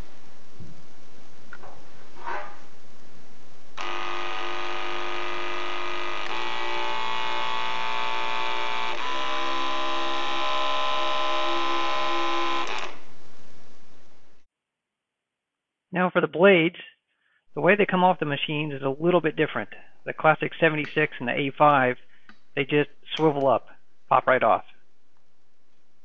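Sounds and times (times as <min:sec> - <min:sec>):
electric dog clipper buzzing: 0:03.8 - 0:13.0.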